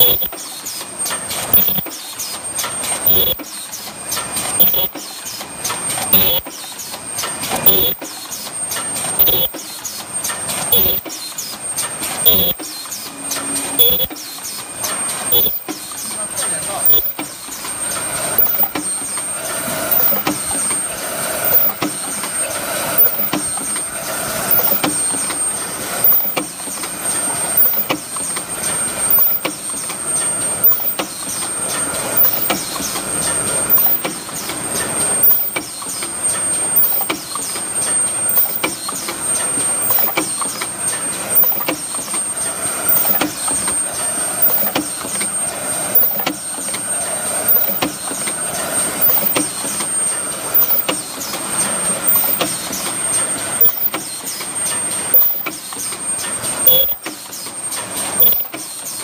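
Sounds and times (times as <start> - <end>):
machine clattering: 0.0 - 59.0
thin high whine: 1.5 - 1.8, 3.1 - 3.4, 6.1 - 6.4, 9.2 - 9.5, 10.7 - 11.1, 12.2 - 14.2, 15.0 - 26.5, 41.2 - 51.0.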